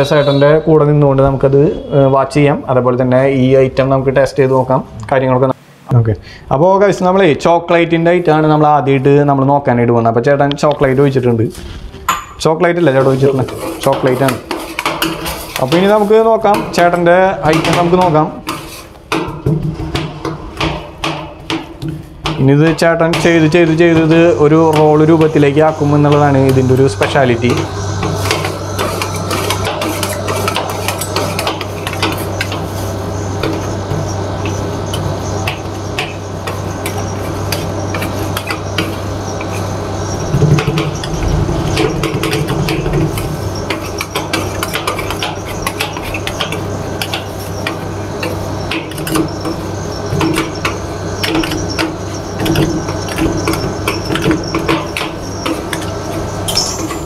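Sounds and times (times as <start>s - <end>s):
steady low hum: 0.0s - 57.0s
metal spatulas scraping metal plate: 13.0s - 18.9s, 23.2s - 32.8s.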